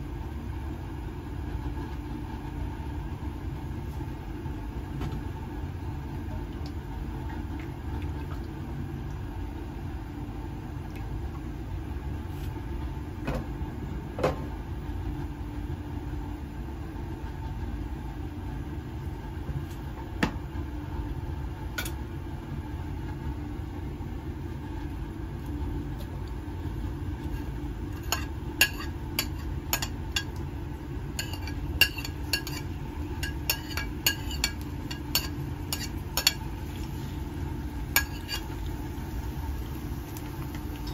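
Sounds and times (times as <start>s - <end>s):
gas stove burner rumble: 0.0s - 40.9s.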